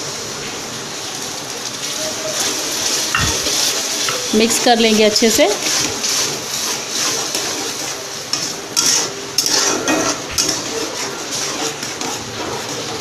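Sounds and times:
spatula scraping wet masala: 2.4s - 13.0s.

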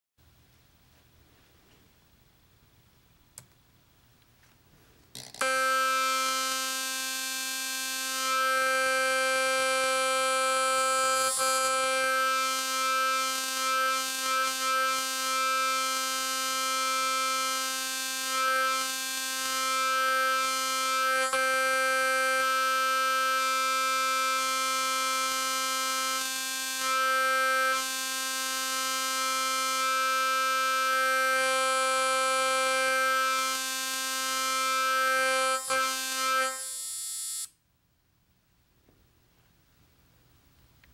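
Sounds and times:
air horn steady note: 5.4s - 36.7s.

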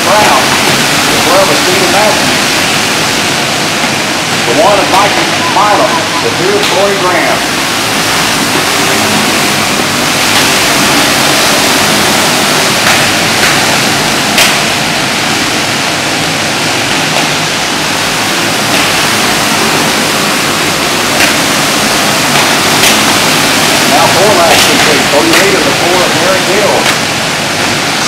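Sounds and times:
kart engines roaring: 7.1s - 27.5s.

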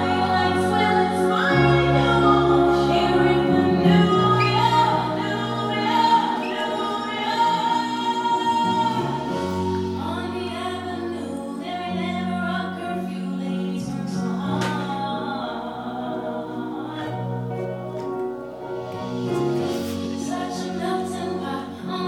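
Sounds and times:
backing music: 0.0s - 22.0s.

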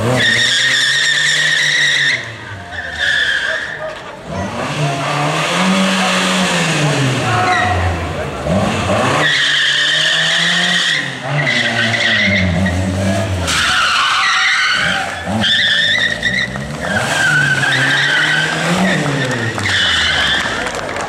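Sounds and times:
car engine revving: 0.0s - 21.0s
tyres squealing: 0.1s - 4.2s, 9.1s - 20.8s.

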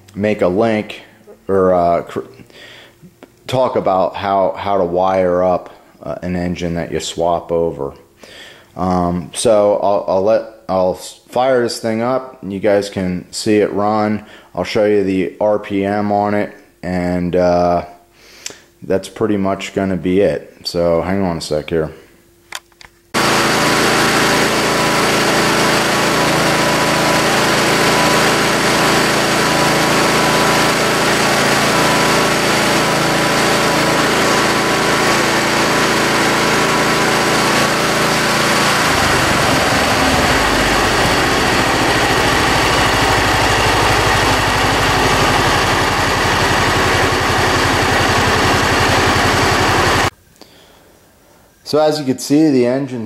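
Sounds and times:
mower engine starting and running: 23.1s - 50.1s.

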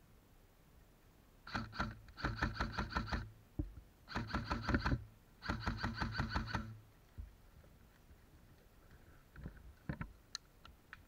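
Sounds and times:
airsoft rifle firing bursts: 1.4s - 3.3s, 4.1s - 6.8s.

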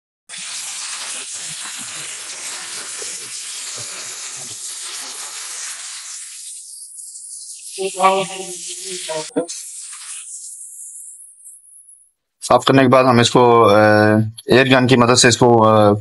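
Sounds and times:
high-pressure water jet spraying: 0.3s - 11.2s.

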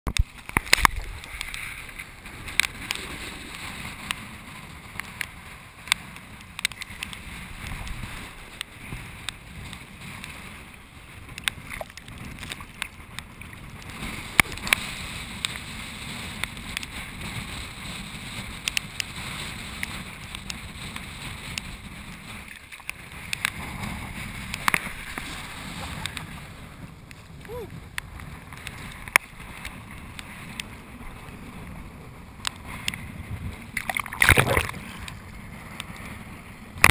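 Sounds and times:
wind: 0.1s - 36.9s
seawater slapping camera housing: 33.8s - 34.8s
sharp splash clicks: 33.8s - 35.2s.

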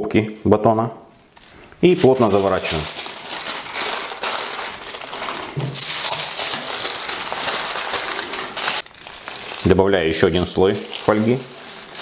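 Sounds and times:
kitchen foil crinkling: 1.2s - 12.0s.

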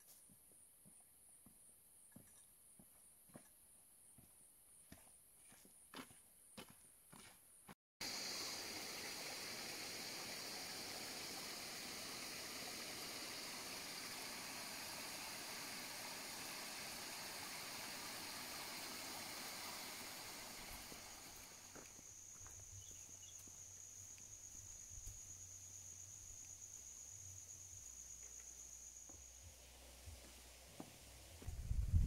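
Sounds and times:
footsteps on dirt path: 4.2s - 7.5s, 21.4s - 25.2s, 30.2s - 31.6s
water rushing in rocky stream: 8.0s - 21.9s
high insect drone: 8.0s - 31.5s.

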